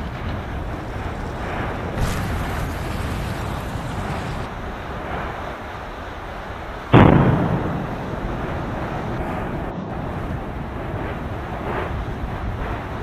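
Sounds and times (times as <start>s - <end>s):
explosive blast: 0.0s - 4.6s, 6.9s - 8.1s
eruption rushing noise: 0.0s - 13.0s.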